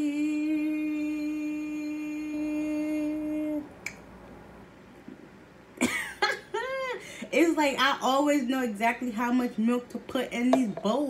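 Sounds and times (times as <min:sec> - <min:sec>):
woman singing long note: 0:00.0 - 0:03.7.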